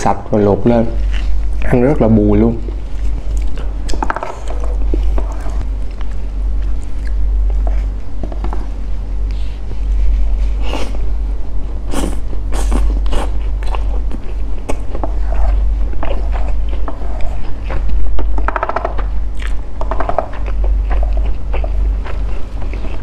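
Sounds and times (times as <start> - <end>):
low hum: 0.0 - 23.0
wet chewing and smacking: 2.6 - 9.4, 12.0 - 23.0.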